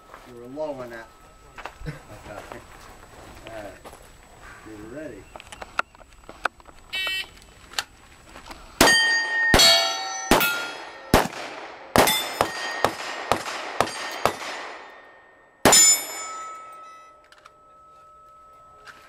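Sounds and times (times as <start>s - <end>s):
gunshots: 8.8s - 15.0s, 15.6s - 16.5s
steel targets ringing: 8.8s - 19.0s.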